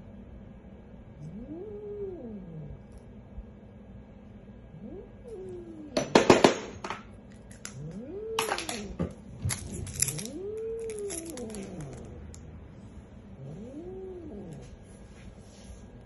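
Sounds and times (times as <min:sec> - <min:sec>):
cat growling: 0:01.2 - 0:03.0, 0:04.6 - 0:06.6, 0:07.5 - 0:14.9.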